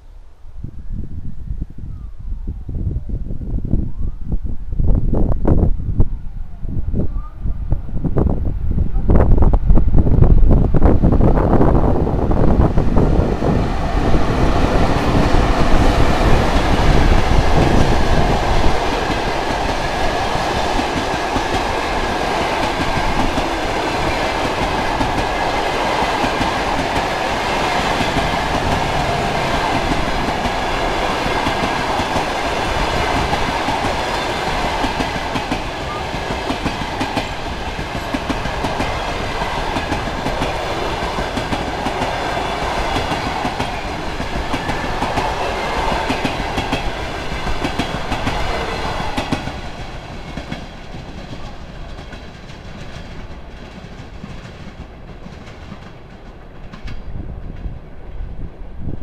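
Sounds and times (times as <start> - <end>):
train passing at speed: 4.7 - 59.0
wheels clattering on rails: 13.3 - 57.7.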